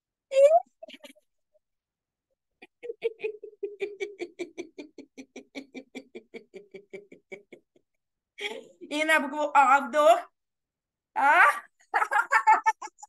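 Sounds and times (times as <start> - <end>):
woman laughing: 2.6 - 7.8, 11.2 - 13.0.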